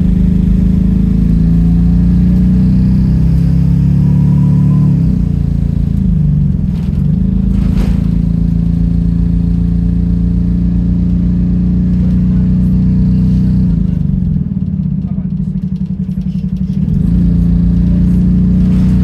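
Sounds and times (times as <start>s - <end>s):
bus engine droning: 0.0s - 19.0s.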